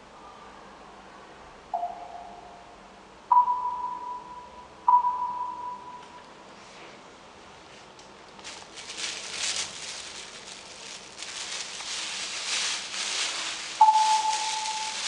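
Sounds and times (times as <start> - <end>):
rustling pattering noise: 7.7 - 15.0.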